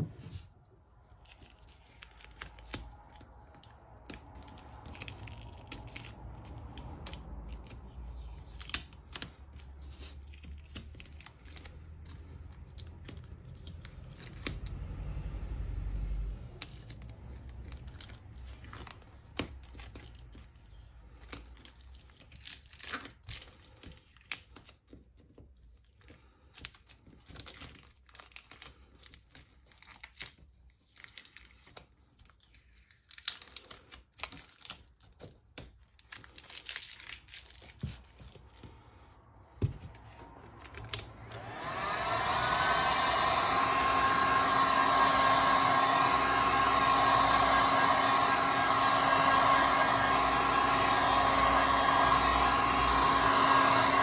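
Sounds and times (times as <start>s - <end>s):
paint mask crackling and crinkling: 0.0s - 14.8s, 16.5s - 41.2s
heat gun whine and blowing: 39.6s - 54.0s.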